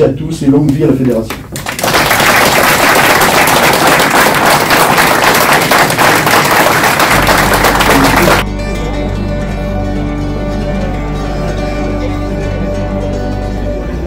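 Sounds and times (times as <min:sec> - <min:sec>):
crowd applauding: 0:01.1 - 0:08.5.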